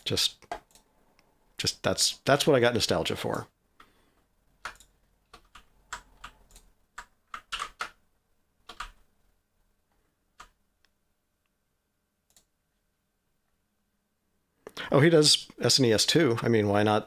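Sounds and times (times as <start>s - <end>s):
computer keyboard typing: 4.6s - 8.0s, 8.6s - 9.1s, 10.4s - 10.6s.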